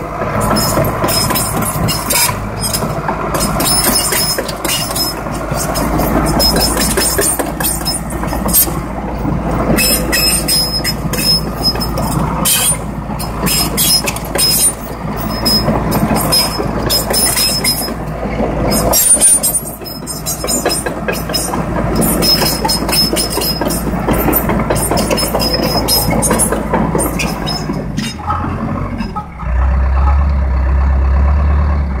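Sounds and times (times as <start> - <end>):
steel tracks clanking: 0.0 - 30.5
diesel engine droning: 0.0 - 32.0.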